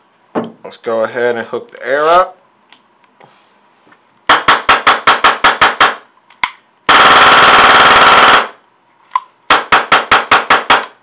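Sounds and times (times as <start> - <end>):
airsoft rifle shots: 4.3 - 6.1, 9.5 - 11.0
airsoft rifle full-auto burst: 6.9 - 8.6.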